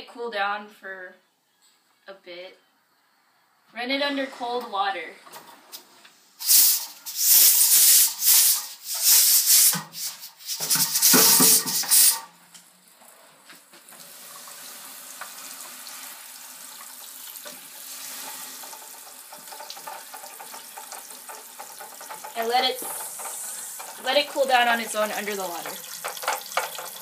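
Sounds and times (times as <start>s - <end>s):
spurts of hissing: 6.4s - 12.3s, 22.3s - 25.6s
tap water splashing in steel sink: 10.6s - 12.2s, 18.6s - 27.0s.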